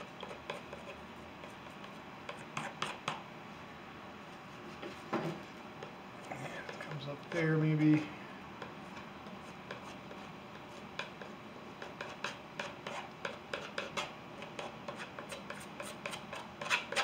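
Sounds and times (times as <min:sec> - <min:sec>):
palette knife scraping paint: 0:00.0 - 0:03.2, 0:08.9 - 0:17.0.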